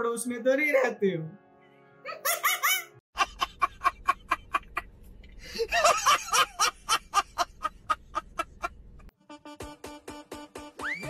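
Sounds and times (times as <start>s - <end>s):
low steady hum: 3.2s - 9.1s.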